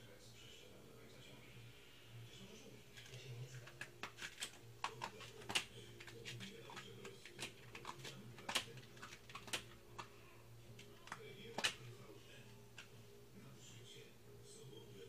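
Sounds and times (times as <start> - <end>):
cat scratching cloth rag: 3.0 - 10.0.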